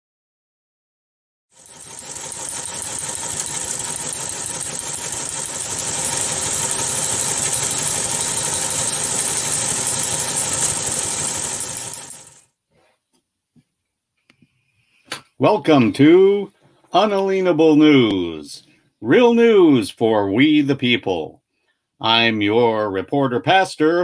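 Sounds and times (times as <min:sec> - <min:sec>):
teletype machine clattering: 0:01.6 - 0:12.4.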